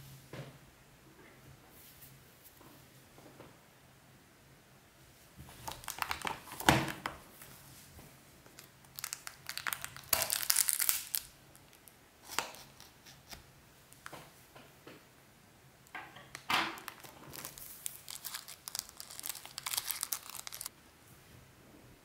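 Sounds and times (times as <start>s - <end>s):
plastic wrap crinkling and tearing: 5.6s - 7.0s, 8.4s - 13.4s, 16.4s - 20.7s.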